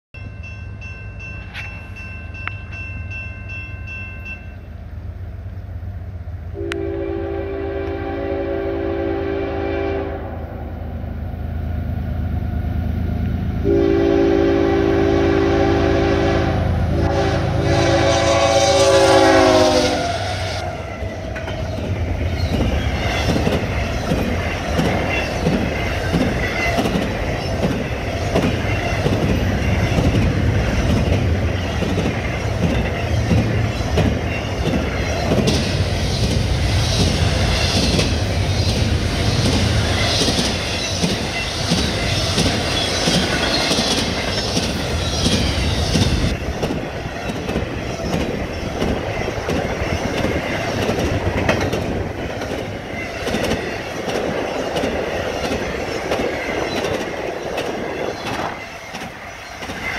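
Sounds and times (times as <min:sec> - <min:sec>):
locomotive horn blasts: 0:06.5 - 0:10.5, 0:13.6 - 0:21.0
train wheels clacking on rails: 0:19.1 - 0:59.9.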